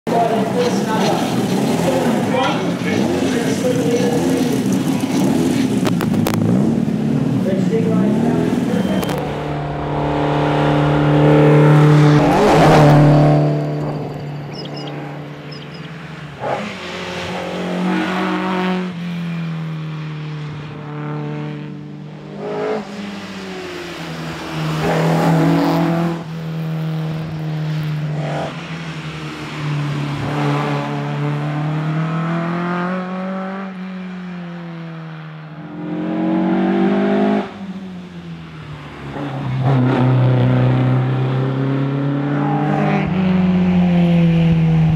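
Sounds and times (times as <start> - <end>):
rally car engine revving: 0.1 - 44.9.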